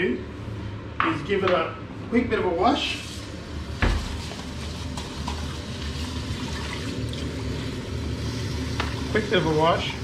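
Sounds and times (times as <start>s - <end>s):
tap running water: 8.7s - 9.2s.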